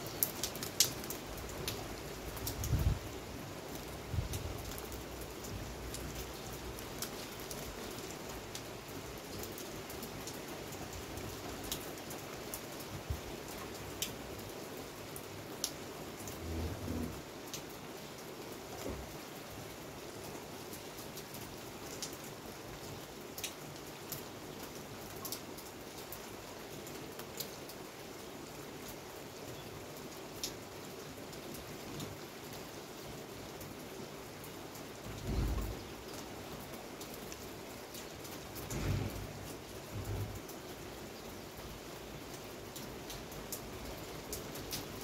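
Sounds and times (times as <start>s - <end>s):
steady rain: 0.0s - 45.0s
low rumbles: 16.3s - 17.2s.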